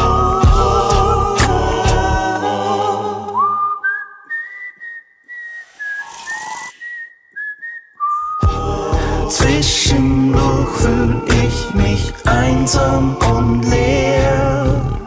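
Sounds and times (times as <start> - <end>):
whistled melody: 3.2 - 13.6.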